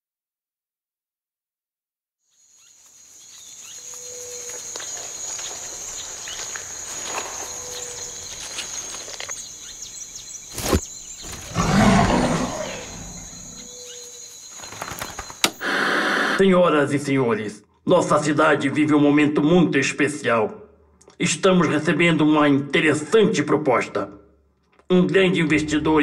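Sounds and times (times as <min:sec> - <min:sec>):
insect-like drone: 0:02.3 - 0:16.4.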